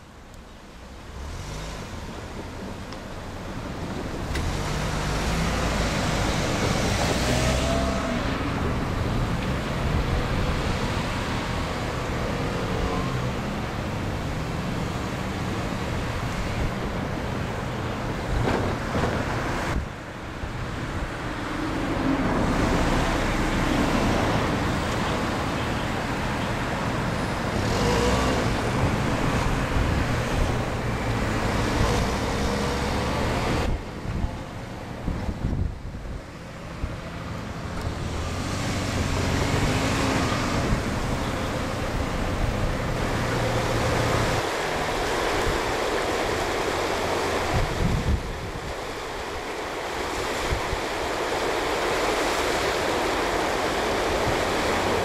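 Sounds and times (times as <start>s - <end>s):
distant traffic rumble: 0.0s - 55.0s.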